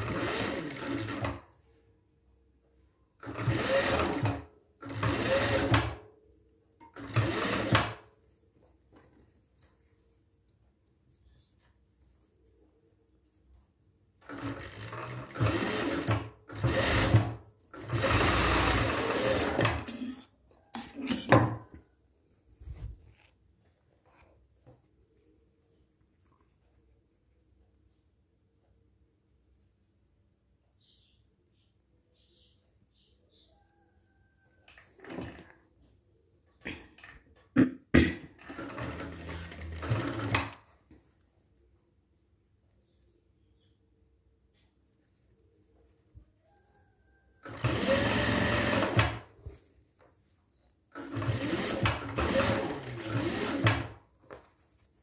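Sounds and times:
sewing machine stitching: 0.0 - 1.5, 3.2 - 6.0, 6.8 - 8.1, 14.2 - 21.7, 34.7 - 35.5, 38.3 - 40.7, 47.4 - 49.4, 50.9 - 54.0.

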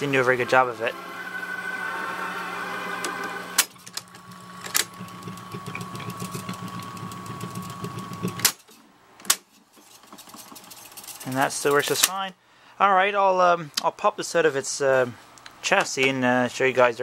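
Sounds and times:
tape reels whirring with high whine: 0.0 - 8.6.

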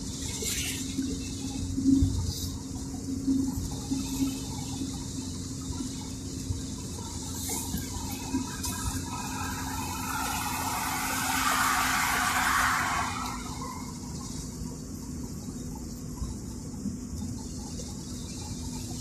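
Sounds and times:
steady low hum: 0.0 - 19.0
vehicle passing: 7.7 - 14.4.

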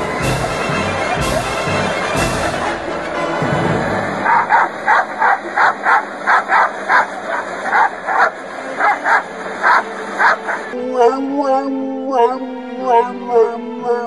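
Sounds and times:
dog barking: 4.2 - 10.8.

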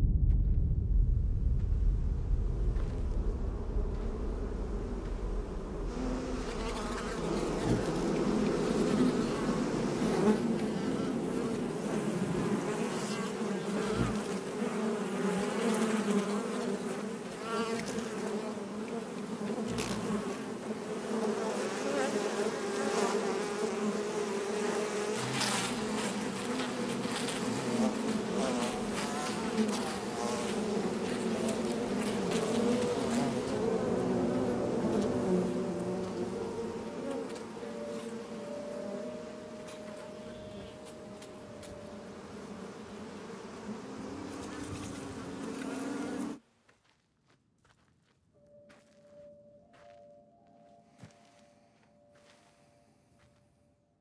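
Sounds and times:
bee swarm buzzing: 3.8 - 46.4.

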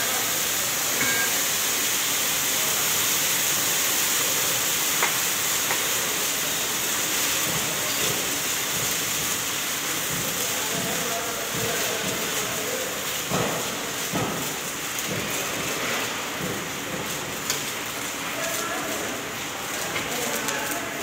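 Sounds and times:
steady foundry hiss: 0.0 - 21.0.

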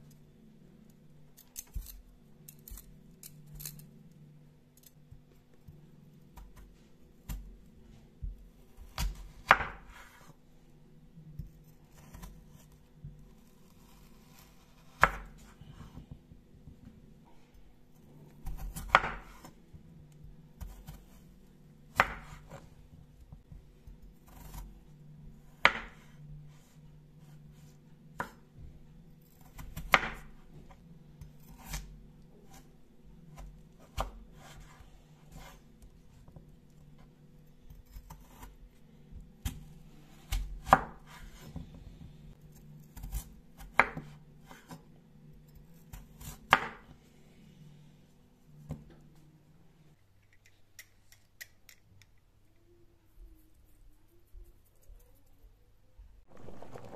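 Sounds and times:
knife slicing through potato: 13.4 - 16.1, 24.2 - 24.7, 31.2 - 35.8, 39.4 - 41.7, 42.4 - 44.9.

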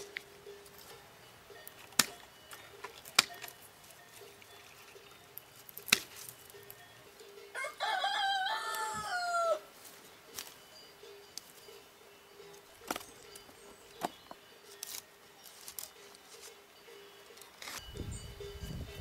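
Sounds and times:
pruning shears snipping twigs: 1.6 - 6.8, 9.8 - 10.6, 12.5 - 16.6, 17.2 - 17.9
rooster crowing: 7.5 - 9.7.

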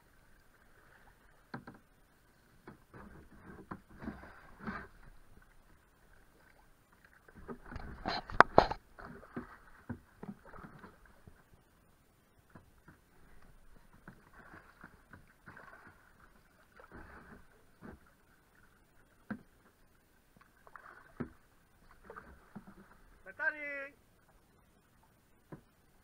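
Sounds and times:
paddle splashing in water: 0.0 - 11.6, 12.4 - 24.4
knocks against canoe: 7.4 - 10.6
water rushing: 20.6 - 24.1.

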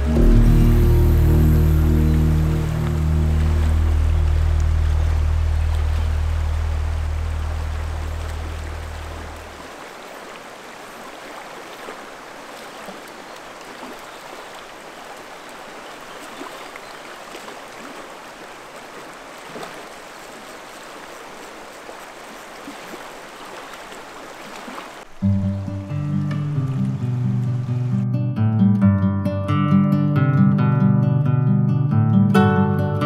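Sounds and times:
acoustic guitar music: 0.0 - 5.5, 25.2 - 33.0
background music: 0.0 - 8.8, 25.2 - 33.0
river rushing over rocks: 0.0 - 27.9
small water splashes: 2.5 - 28.0.

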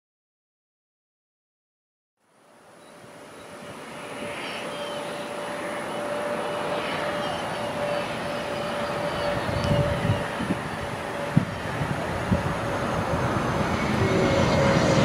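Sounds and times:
jet engines whining: 2.9 - 15.0.

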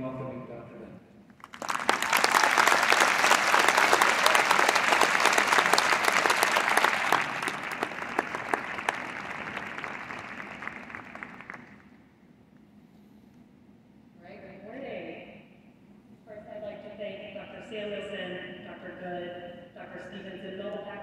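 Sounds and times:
audience applauding: 1.4 - 11.9.

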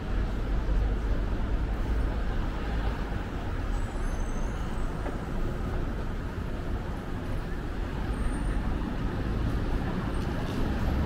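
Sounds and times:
street traffic rumble: 0.0 - 11.0.

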